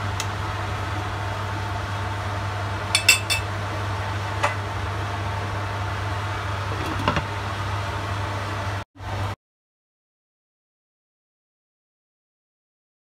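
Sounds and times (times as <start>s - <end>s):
glass pot lid clinking: 3.0s - 3.5s
metal spoon clinking against pot: 3.0s - 3.5s.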